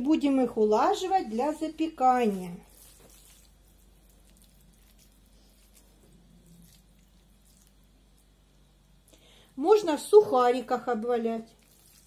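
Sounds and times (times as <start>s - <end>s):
hands shaping wet minced meat: 0.3s - 9.2s, 11.4s - 12.0s.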